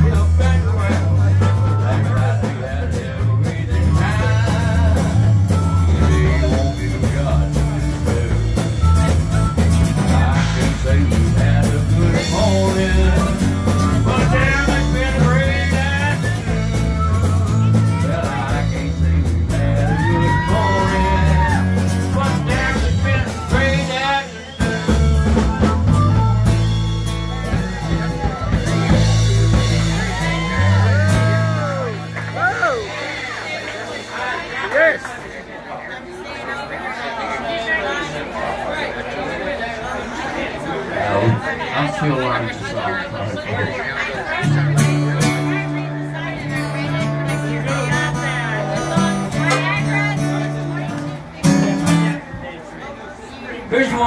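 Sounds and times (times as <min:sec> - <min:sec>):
man singing into a microphone: 0:00.0 - 0:26.7
harmonica: 0:00.0 - 0:32.2
strummed acoustic guitar: 0:00.0 - 0:34.8, 0:41.0 - 0:52.4.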